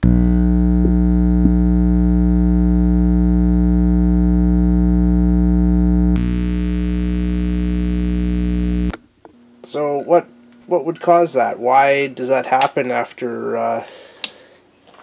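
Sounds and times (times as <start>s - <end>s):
transformer humming loudly: 0.0s - 8.9s.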